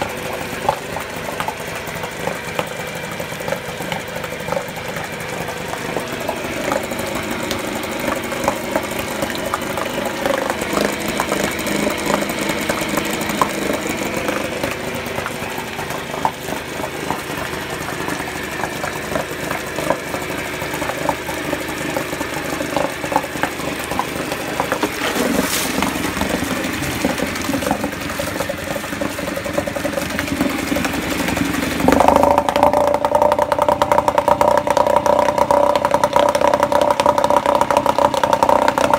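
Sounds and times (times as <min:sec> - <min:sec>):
outboard motor running: 0:00.0 - 0:38.9.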